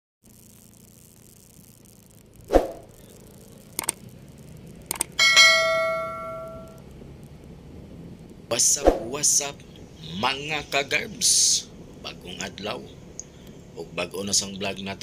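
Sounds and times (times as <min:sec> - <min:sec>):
mouse clicks: 0:03.8 - 0:04.0, 0:04.9 - 0:05.1
notification bell ding: 0:05.2 - 0:06.8.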